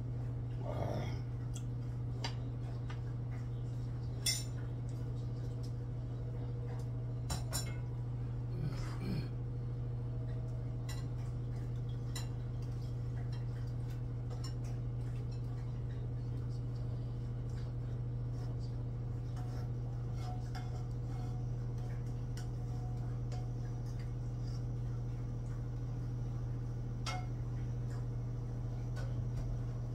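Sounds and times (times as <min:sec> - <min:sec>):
steady low hum: 0:00.0 - 0:29.9
dishes and cutlery clinking: 0:02.2 - 0:05.5, 0:06.7 - 0:08.0, 0:10.8 - 0:16.6.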